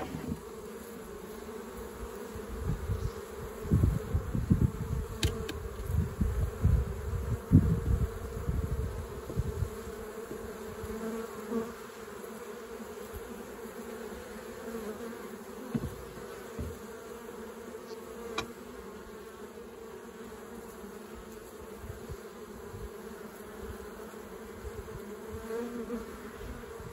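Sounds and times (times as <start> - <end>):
honeybees buzzing: 0.0 - 26.9
sharp click: 5.2 - 5.6.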